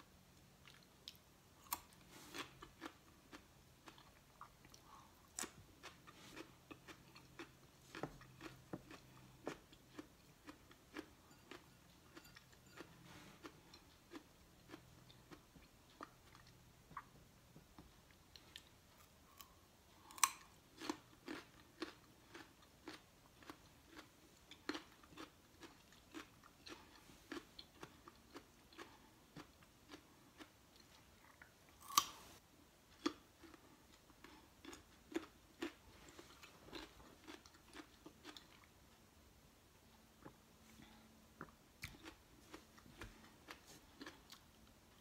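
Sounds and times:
carrot crunching: 0.7 - 17.1, 18.3 - 32.4, 33.0 - 38.7, 40.2 - 44.7.

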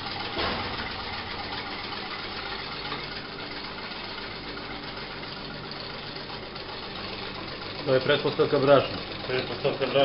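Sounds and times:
stand mixer motor humming: 0.0 - 10.0.

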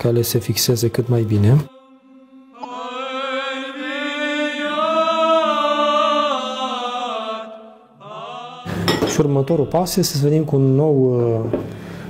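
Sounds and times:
choir chanting over drone: 1.7 - 10.2.

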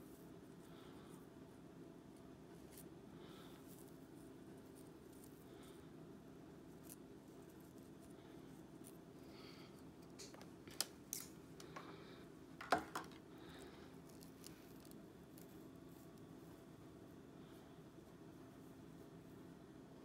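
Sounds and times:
low room hum: 0.0 - 20.0.

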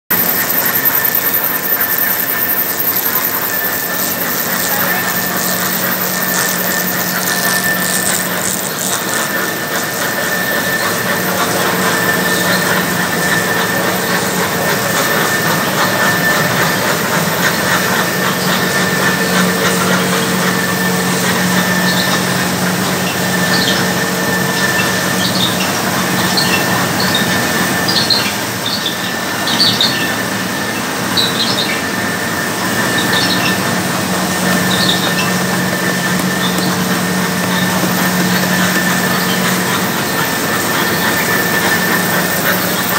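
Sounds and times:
short high squeaks: 0.1 - 13.6
loud machine hum: 0.1 - 42.9.

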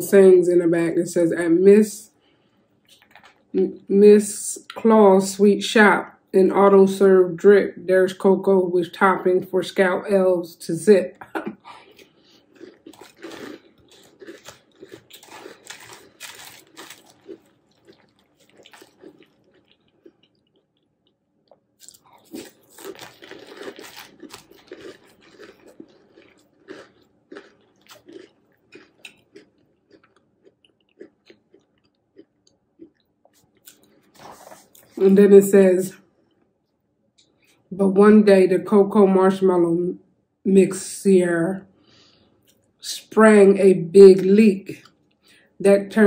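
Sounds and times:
crunchy cereal chewing: 2.8 - 3.5, 11.8 - 35.0.

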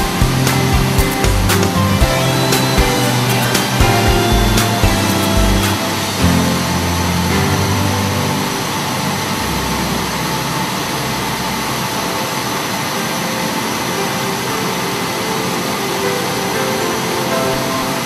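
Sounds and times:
machine cutter whirring: 0.0 - 7.4.

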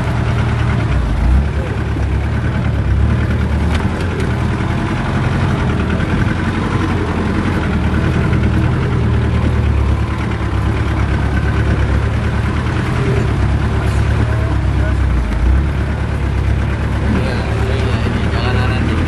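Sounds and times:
vehicle engine running at low revs: 0.0 - 19.0.

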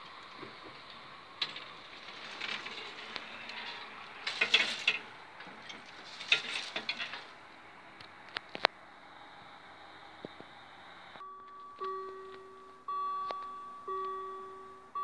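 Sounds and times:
steady hiss: 0.0 - 11.2
barrier mechanism clicks and rattles: 0.2 - 7.4.

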